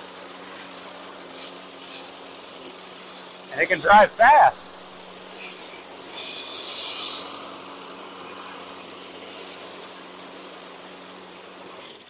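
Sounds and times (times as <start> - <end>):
lawn mower engine running: 0.0 - 6.0.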